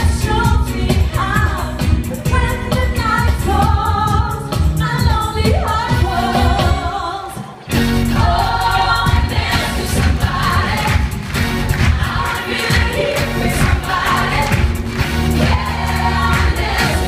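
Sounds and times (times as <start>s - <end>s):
woman singing lead: 0.0s - 10.8s
band playing steady beat: 0.0s - 17.0s.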